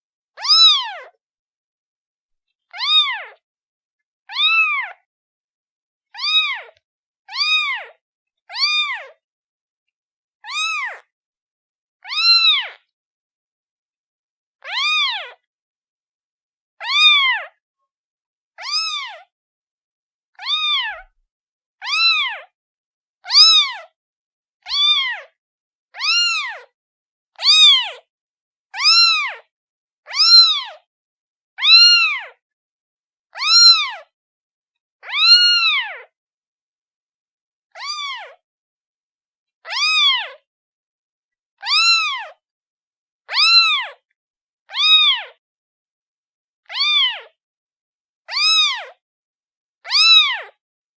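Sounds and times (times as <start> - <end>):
kitten meowing: 0.4 - 1.1, 2.7 - 3.4, 4.3 - 5.1, 6.2 - 9.2, 10.4 - 11.1, 12.0 - 12.8, 14.6 - 15.4, 16.8 - 17.6, 18.6 - 19.3, 20.4 - 21.2, 21.8 - 22.5, 23.2 - 24.0, 24.7 - 25.3, 26.0 - 26.7, 27.4 - 28.0, 28.8 - 29.5, 30.1 - 30.9, 31.6 - 32.4, 33.3 - 34.1, 35.0 - 36.1, 37.7 - 38.4, 39.6 - 40.4, 41.6 - 42.4, 43.3 - 44.0, 44.7 - 45.4, 46.6 - 47.4, 48.3 - 49.0, 49.8 - 50.6.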